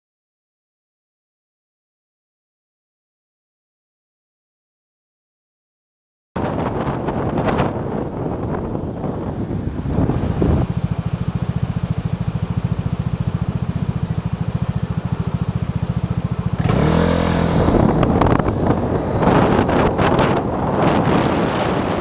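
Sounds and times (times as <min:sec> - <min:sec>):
wind rushing over microphone: 0:06.4 - 0:22.0
scooter engine idling and revving: 0:07.2 - 0:22.0.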